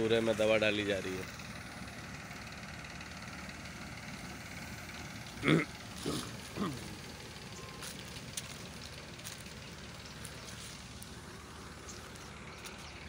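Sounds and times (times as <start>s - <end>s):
tractor engine running: 0.0s - 13.0s
light crackles: 5.9s - 13.0s.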